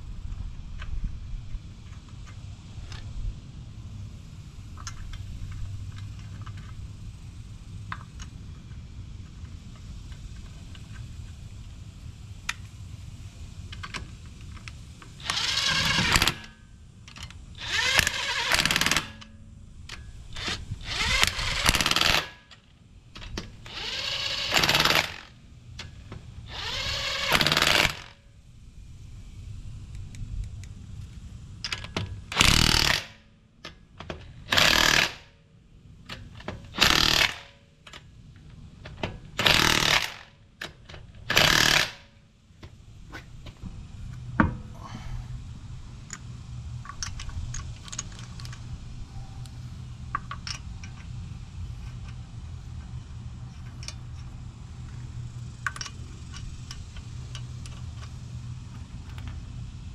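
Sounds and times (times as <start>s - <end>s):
light clicks of lug nuts: 12.4s - 12.7s, 46.0s - 48.7s, 49.4s - 59.5s
impact wrench hammering: 20.5s - 22.4s, 23.7s - 25.3s, 26.6s - 28.1s, 39.4s - 40.3s.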